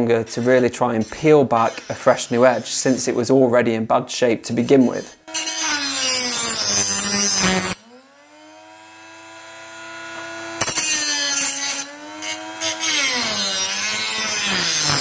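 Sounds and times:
knife sharpener grinding blade: 0.3s - 3.3s, 4.6s - 7.8s.

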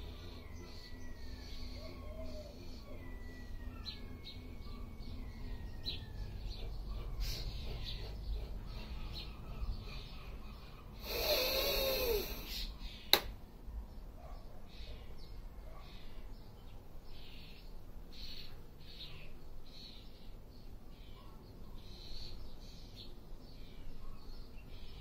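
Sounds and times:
birds chirping faintly: 0.0s - 25.0s
man breathing out hard: 11.0s - 12.6s.

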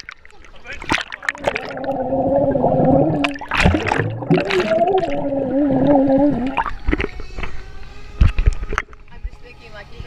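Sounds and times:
sharp splashes: 0.0s - 7.2s
water bubbling and gurgling: 0.0s - 9.2s.

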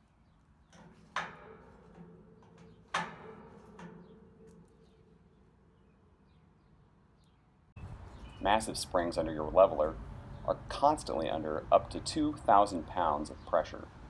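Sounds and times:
metal clanks ringing in steel: 0.8s - 5.5s.

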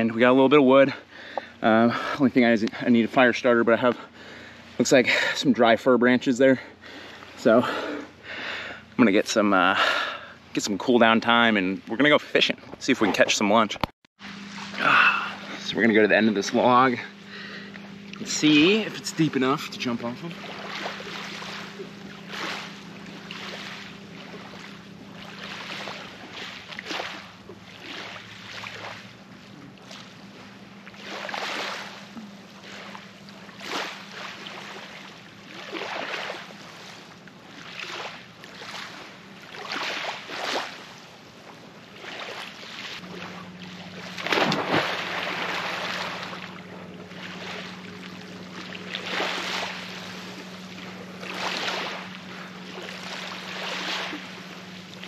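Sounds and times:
waves lapping on shore: 14.2s - 55.0s
person splashing into water: 20.3s - 29.1s, 31.0s - 32.0s, 42.1s - 47.7s, 48.5s - 50.3s, 51.2s - 54.4s.

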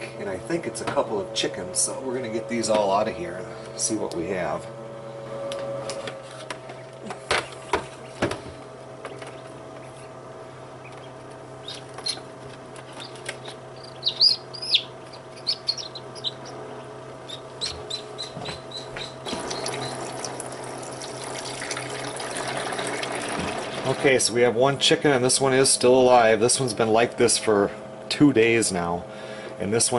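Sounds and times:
chicks peeping: 6.7s - 20.1s
water pouring from a cup: 19.4s - 23.8s.

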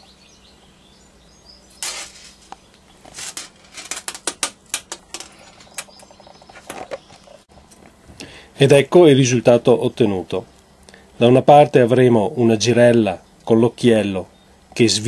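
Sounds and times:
fishing line clicks and rustles: 1.8s - 7.2s.

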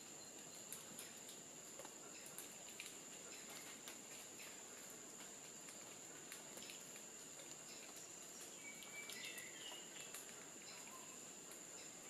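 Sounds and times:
faint clicks: 0.7s - 4.6s.

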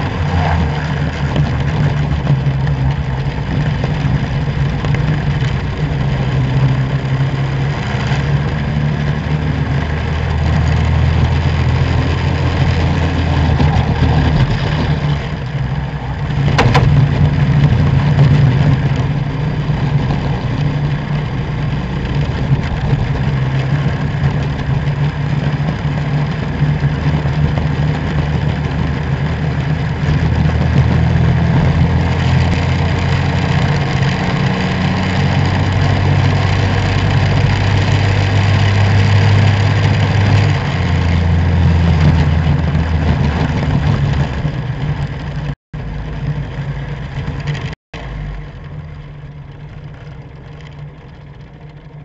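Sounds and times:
go-kart engine at speed: 0.0s - 52.0s.

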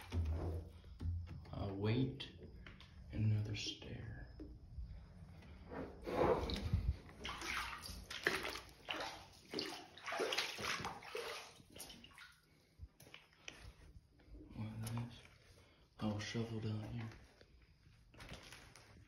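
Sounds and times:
footsteps wading through water: 6.5s - 19.0s.

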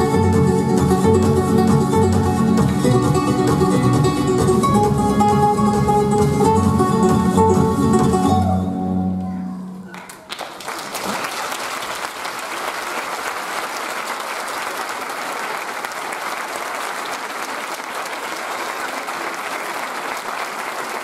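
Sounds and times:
audience applauding: 9.9s - 21.0s.

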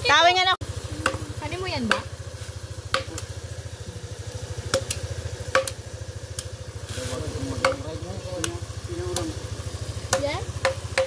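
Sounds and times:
small engine idling: 0.0s - 11.0s
knife chopping chicken: 2.9s - 3.3s, 4.7s - 5.8s, 7.6s - 8.6s.

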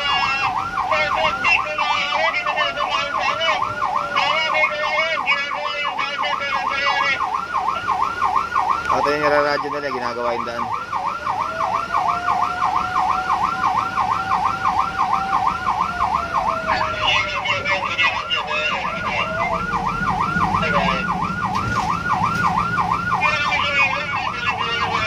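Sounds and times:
engine and road rumble: 0.0s - 25.0s
yelping fire truck siren: 0.0s - 25.0s
lower siren tone falling: 10.4s - 25.0s.

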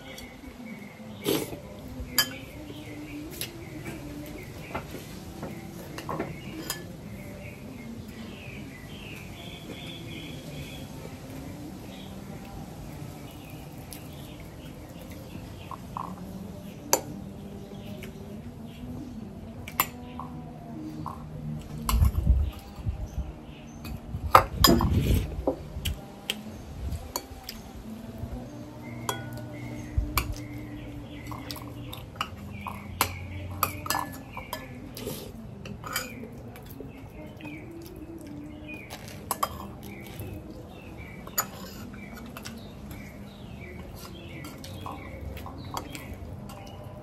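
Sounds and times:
metal utensils clinking on dishes: 1.2s - 2.8s, 5.5s - 7.2s, 19.6s - 20.4s, 23.8s - 25.3s, 28.8s - 37.9s, 38.7s - 40.4s, 41.0s - 47.0s.

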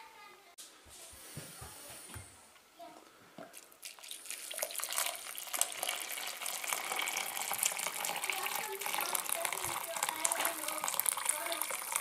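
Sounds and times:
water pouring into plastic jug: 3.4s - 12.0s.

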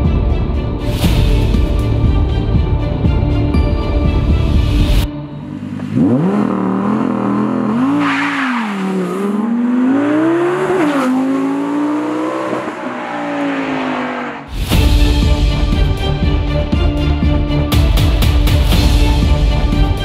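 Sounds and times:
car engine accelerating hard: 5.4s - 14.5s.

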